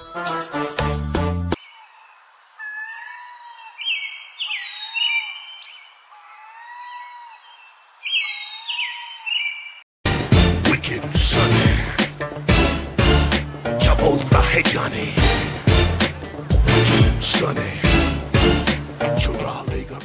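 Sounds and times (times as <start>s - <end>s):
music: 0.0s - 1.6s, 10.0s - 20.0s
birds chirping and whistling: 2.9s - 6.0s, 6.7s - 9.8s.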